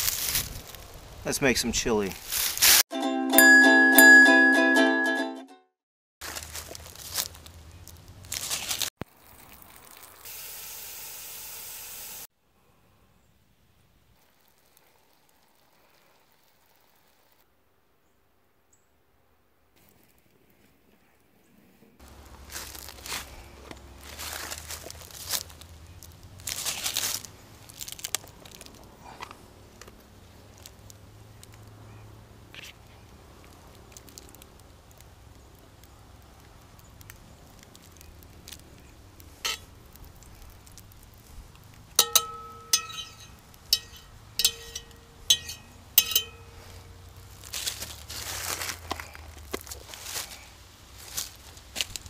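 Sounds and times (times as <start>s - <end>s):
plastic tub crinkling: 6.2s - 10.2s, 22.0s - 28.9s
food frying and sizzling: 6.2s - 12.3s
faint hiss: 9.1s - 17.5s.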